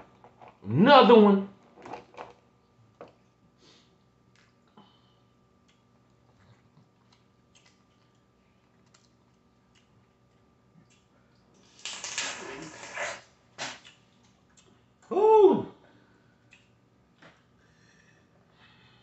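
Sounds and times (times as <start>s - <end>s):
soft eating sounds: 1.6s - 19.0s
shells cracking and peeling: 11.7s - 12.9s.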